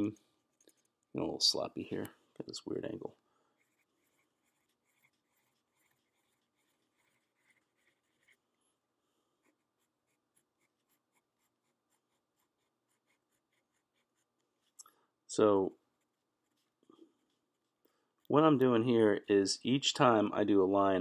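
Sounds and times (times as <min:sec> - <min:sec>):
pencil scratching on paper: 0:03.6 - 0:08.5, 0:09.4 - 0:14.8, 0:16.0 - 0:17.9.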